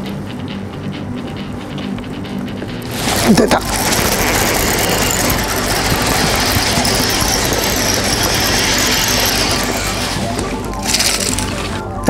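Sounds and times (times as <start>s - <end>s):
fishing reel whirring: 2.8s - 11.9s.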